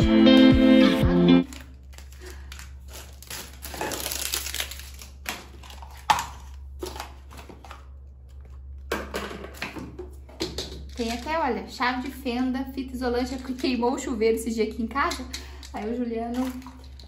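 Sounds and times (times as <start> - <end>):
packaging crinkling: 1.4 - 8.8.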